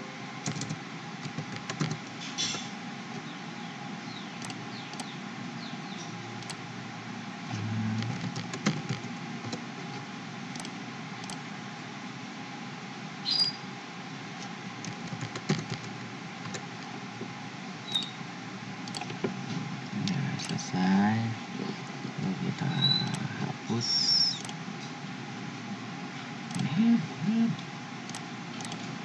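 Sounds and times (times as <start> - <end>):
steady background hiss and hum: 0.0 - 29.0
keyboard key presses: 0.4 - 2.0, 7.6 - 9.6, 14.9 - 16.6
computer mouse clicks: 4.4 - 5.1, 8.0 - 9.6, 10.5 - 11.4, 18.8 - 19.2, 24.4 - 24.6, 26.5 - 26.8, 28.1 - 28.9
short low hum: 7.4 - 9.6.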